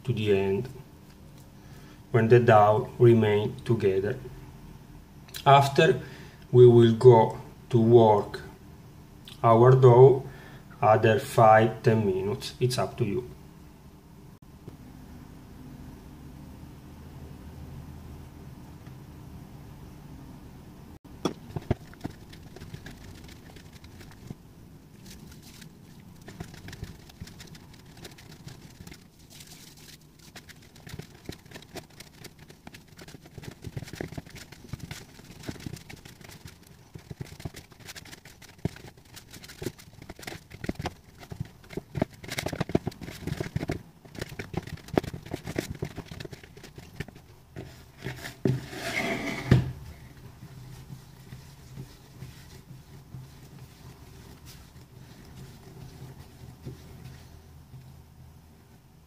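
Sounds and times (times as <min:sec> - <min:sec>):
dough kneaded in a bowl: 0:21.1 - 0:59.0.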